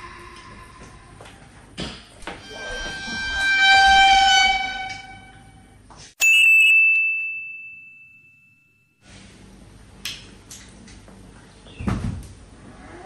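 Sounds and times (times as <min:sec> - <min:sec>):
bright bell ding: 0:06.2 - 0:09.0.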